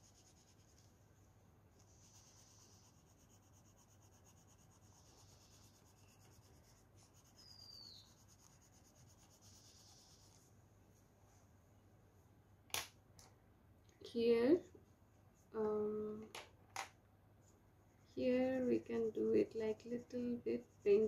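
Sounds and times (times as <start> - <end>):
coloring strokes on paper: 0.0 - 10.6, 17.4 - 21.0.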